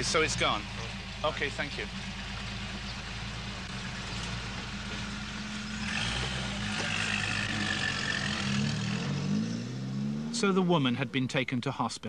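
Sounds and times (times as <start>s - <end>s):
high engine whine: 0.0s - 11.1s
jeep engine humming: 0.0s - 11.2s.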